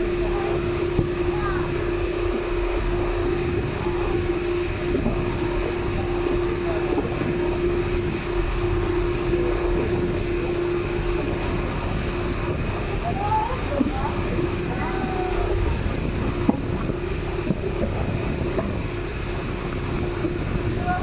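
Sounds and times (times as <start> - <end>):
boat engine droning: 0.0 - 21.0
wind and water rushing: 0.0 - 21.0.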